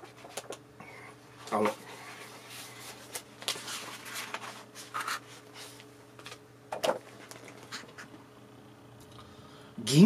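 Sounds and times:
magazine pages rustling: 0:01.4 - 0:08.1.

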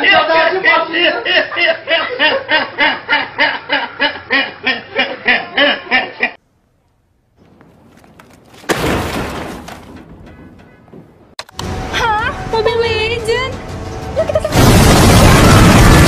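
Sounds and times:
man laughing hard: 0:00.9 - 0:06.4
computer crashing into metal dumpster: 0:08.6 - 0:10.7.

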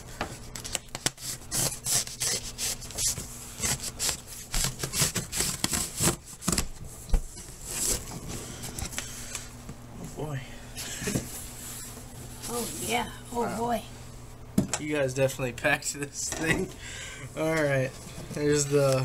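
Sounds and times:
knife slicing tape and cardboard: 0:00.6 - 0:06.6.

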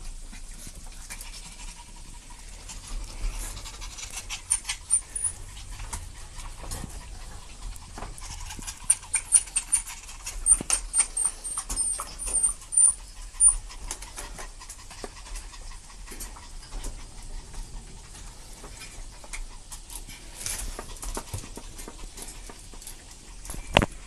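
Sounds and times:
dog panting: 0:00.0 - 0:24.0
puppy play-biting: 0:00.4 - 0:17.1
high squeaks: 0:08.8 - 0:13.6.

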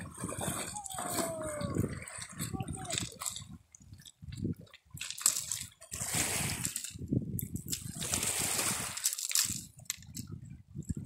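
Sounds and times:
waves lapping on pebble shore: 0:05.0 - 0:07.0, 0:07.7 - 0:09.7.

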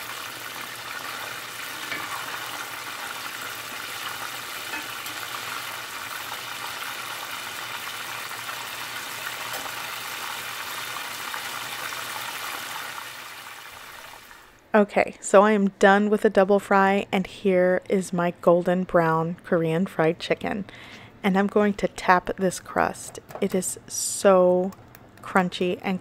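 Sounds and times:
chicken deep-frying in hot oil: 0:00.0 - 0:14.5.

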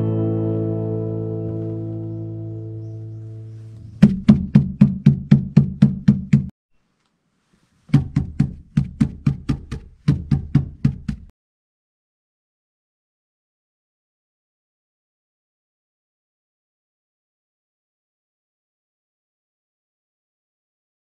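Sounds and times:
tapping on damped metal panel: 0:04.0 - 0:06.5, 0:07.9 - 0:11.3.

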